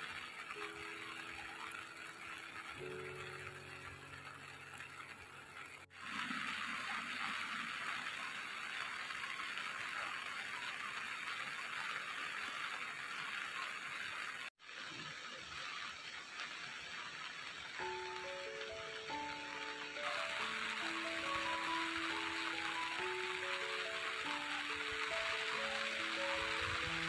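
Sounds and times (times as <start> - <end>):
rain falling: 0.0 - 27.0.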